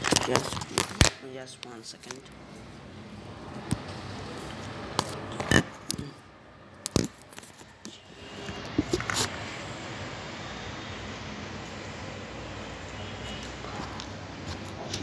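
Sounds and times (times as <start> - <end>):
phone handling scrapes: 8.4 - 9.4.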